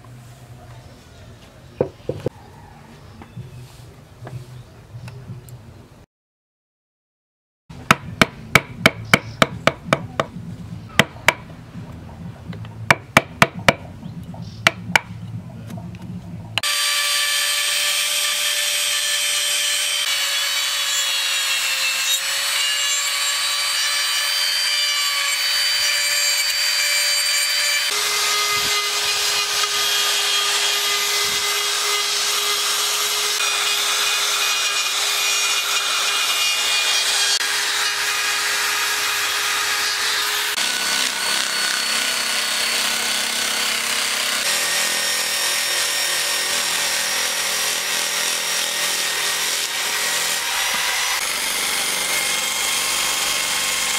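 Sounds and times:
rotary tool grinding wood: 16.6 - 53.9.

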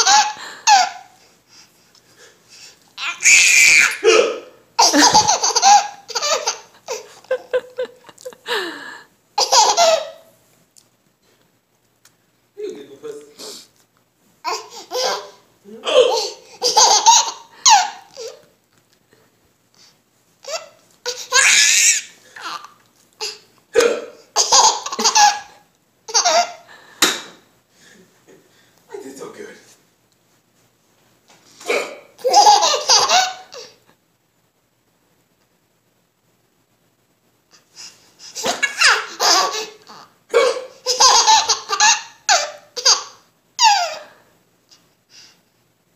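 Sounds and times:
baby laughing: 0.0 - 1.1, 3.0 - 8.4, 9.4 - 10.3, 14.4 - 18.5, 20.4 - 23.4, 24.4 - 26.7, 32.2 - 33.8, 38.3 - 44.1
adult hiccups: 4.0 - 4.6, 23.7 - 24.3, 31.6 - 32.2, 40.3 - 40.8.

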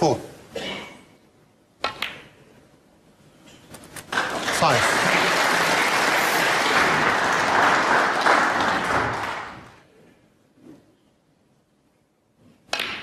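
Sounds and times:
audience applauding: 4.1 - 9.8.

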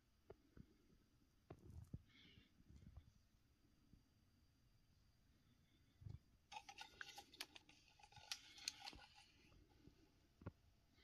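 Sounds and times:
box handling clicks and rustles: 6.5 - 9.3.

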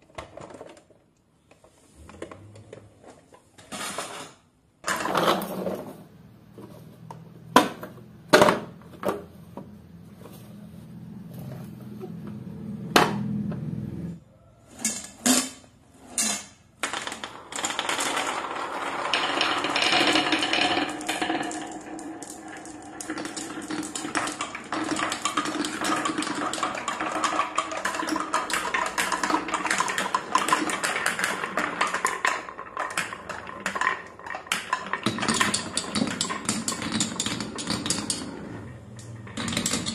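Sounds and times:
toy truck rolling on hard floor: 0.0 - 39.9
marbles rattling down tracks: 14.8 - 39.9.

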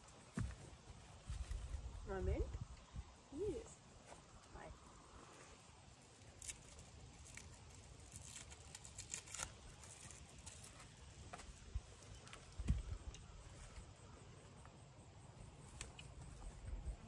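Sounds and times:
wind rumble on microphone: 1.2 - 3.6.

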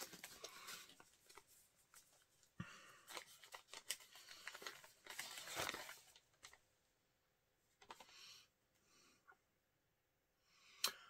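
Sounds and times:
paper rustling and crinkling: 0.0 - 6.7, 7.8 - 8.1.

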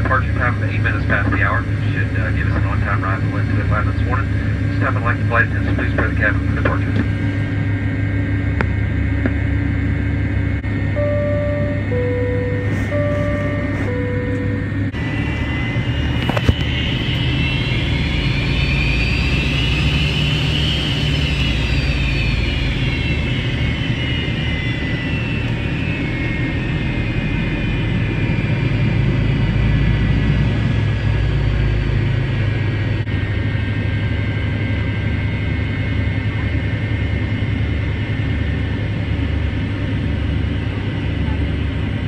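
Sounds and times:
jet engine roar in cabin: 0.0 - 42.0
two-tone chime: 11.0 - 14.8.

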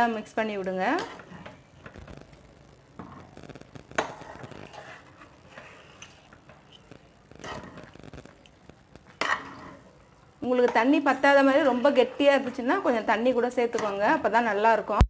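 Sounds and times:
ladle stirring thick mash: 4.0 - 8.0, 9.0 - 10.0.

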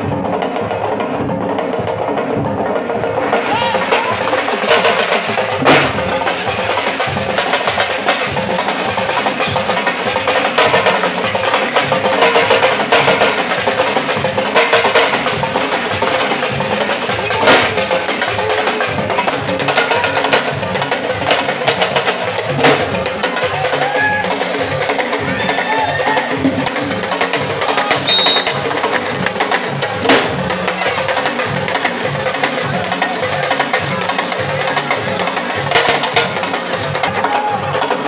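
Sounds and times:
fast hand and stick drumming: 0.0 - 38.0
sharp drum cracks: 5.6 - 6.3, 27.3 - 30.6.

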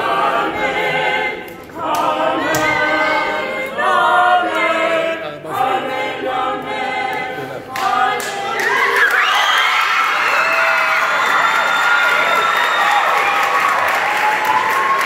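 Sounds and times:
group singing a cappella: 0.0 - 9.1.

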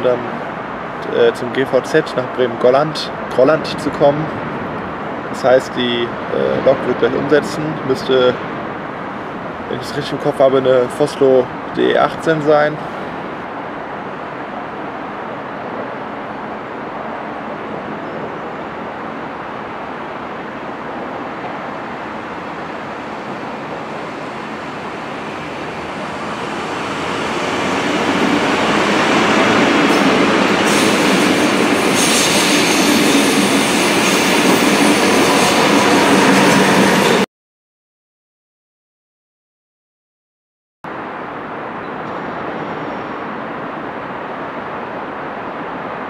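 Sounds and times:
electric train passing: 12.9 - 37.2.

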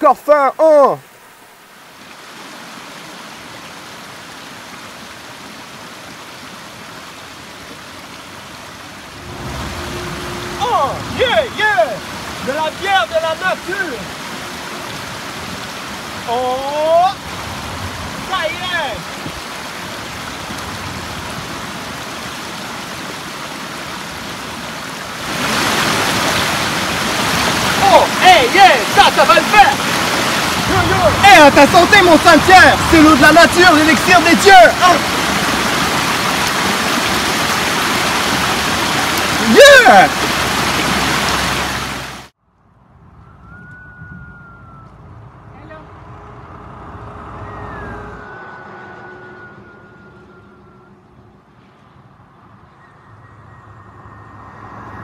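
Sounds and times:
mountain stream running over rocks: 0.0 - 42.4.

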